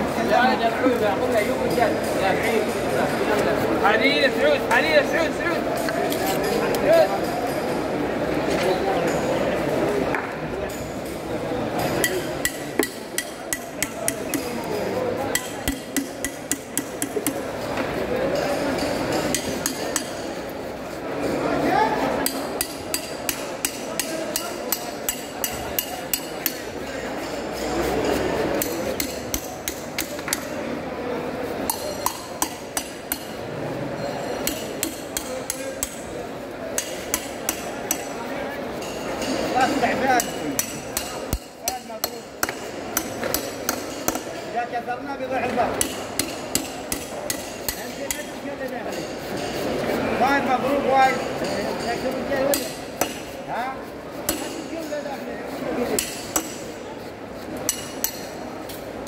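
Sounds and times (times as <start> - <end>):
metal rod tapping knife spine: 12.0 - 14.8, 15.4 - 17.4
metal rod tapping knife blade: 12.0 - 17.4, 22.2 - 27.7, 28.6 - 30.6, 31.6 - 33.4, 34.2 - 36.0.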